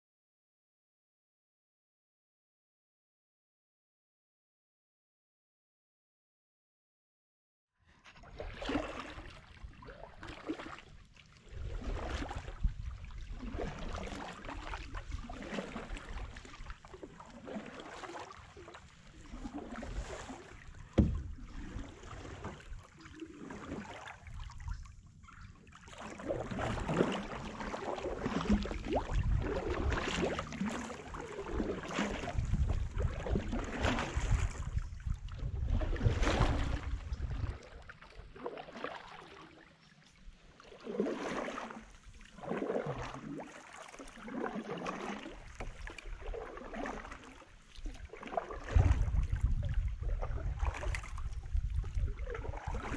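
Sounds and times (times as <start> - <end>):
paddles splashing through water: 7.9 - 52.9
paddle knocking canoe hull: 19.8 - 22.7.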